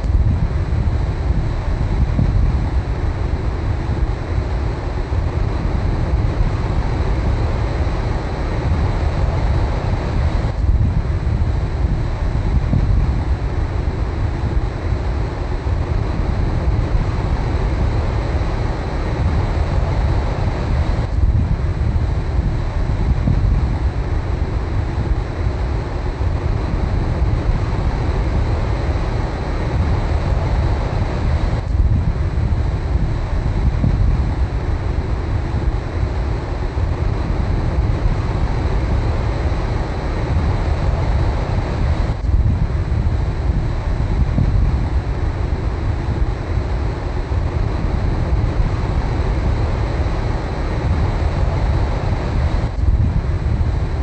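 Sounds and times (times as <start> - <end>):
wind rumble on microphone: 0.0 - 54.0.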